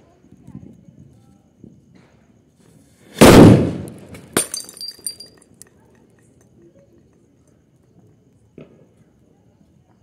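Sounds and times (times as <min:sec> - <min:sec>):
firecracker bang: 0:03.1 - 0:04.6
glass bottle shattering: 0:04.3 - 0:05.4.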